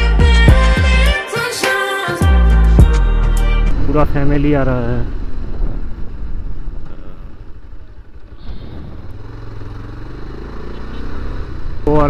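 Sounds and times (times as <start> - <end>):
motorcycle engine running: 4.6 - 12.0.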